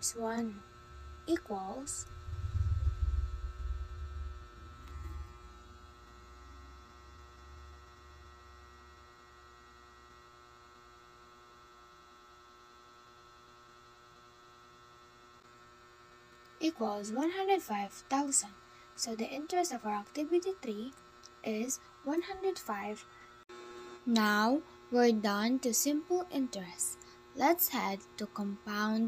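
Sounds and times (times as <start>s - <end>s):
faint electrical hum: 0.0s - 29.0s
microphone handling rumble: 2.0s - 5.6s.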